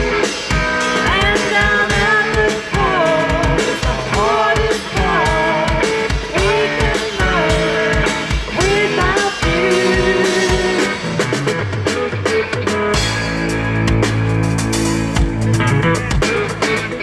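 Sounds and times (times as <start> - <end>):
drum kit beat: 0.0 - 17.0
electric guitars: 0.0 - 17.0
woman singing: 1.0 - 11.0.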